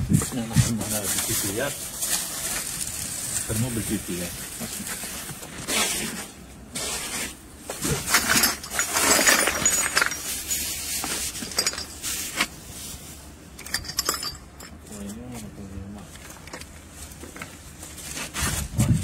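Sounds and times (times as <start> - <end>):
rustling: 0.2 - 19.0
plastic pipe fittings clinking on stone: 8.2 - 12.1, 13.6 - 15.0.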